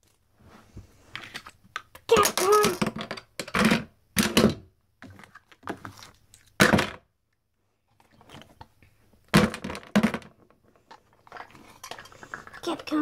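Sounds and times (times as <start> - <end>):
plastic toys knocking on floor: 2.0 - 5.8, 6.6 - 7.0, 9.3 - 10.6.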